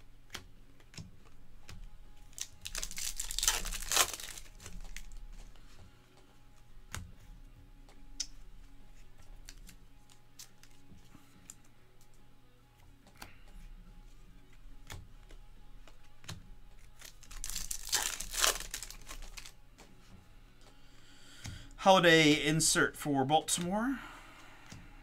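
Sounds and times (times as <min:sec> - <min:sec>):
card rustle: 0:02.3 - 0:05.8, 0:15.2 - 0:19.9
cards clicking and sliding: 0:06.8 - 0:12.2, 0:12.8 - 0:13.7, 0:14.4 - 0:20.8.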